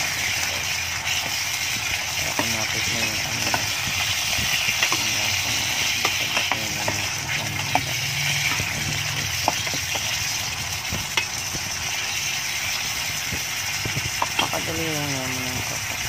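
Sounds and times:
meat sizzling in hot fat: 0.0s - 16.0s
metal ladle scraping a pot: 3.4s - 10.2s.

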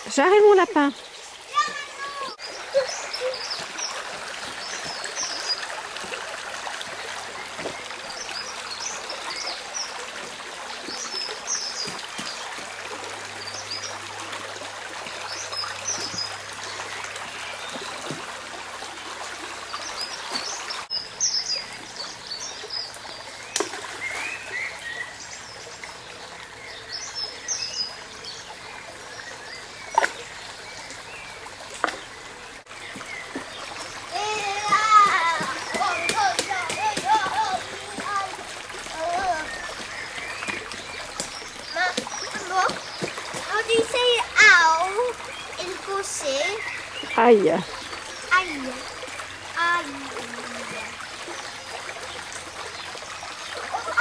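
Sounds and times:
small birds chirping: 0.0s - 6.0s, 19.6s - 54.0s
stream trickling over stones: 0.0s - 54.0s.

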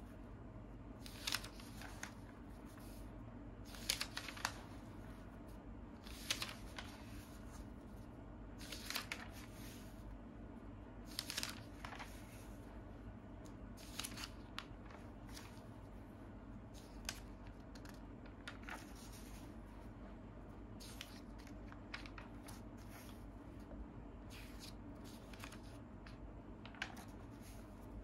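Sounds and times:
paper pages rustling: 1.0s - 8.0s, 8.6s - 10.0s, 11.0s - 12.7s, 13.5s - 16.0s, 16.7s - 19.8s, 20.8s - 23.4s, 24.3s - 28.0s.

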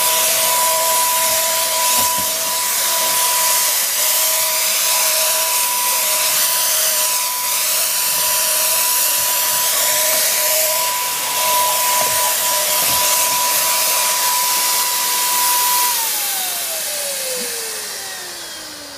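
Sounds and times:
paint sprayer hissing whine: 0.0s - 18.9s.

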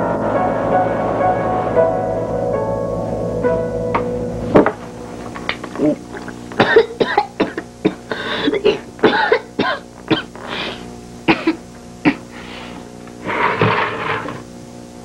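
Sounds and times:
woman coughing: 6.6s - 12.3s
woman gasping: 8.1s - 8.8s, 10.4s - 10.9s.

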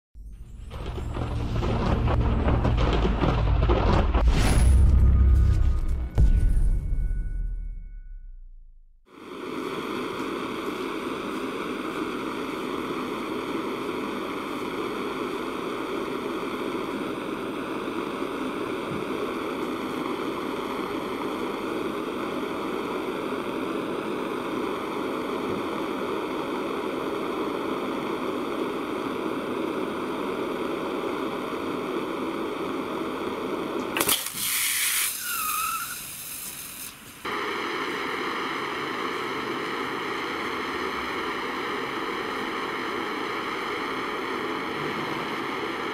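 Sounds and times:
blowtorch flame hissing: 9.1s - 45.9s
rush of noise with whistling: 34.4s - 45.9s.

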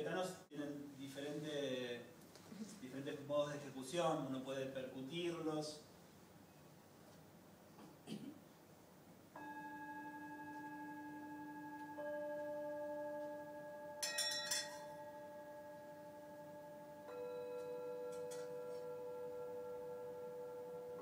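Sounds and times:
singing bowls ringing: 9.4s - 21.0s.

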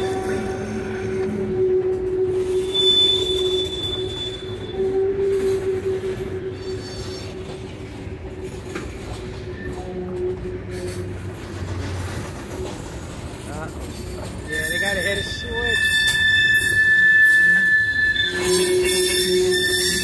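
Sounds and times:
wheel squeal: 0.0s - 12.7s, 14.1s - 20.0s
freight cars rolling on rails: 0.0s - 20.0s.

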